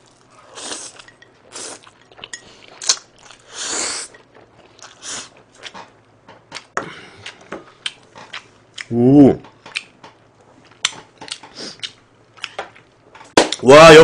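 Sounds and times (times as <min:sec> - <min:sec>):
chewing and mouth smacks: 0:09.7 - 0:13.0.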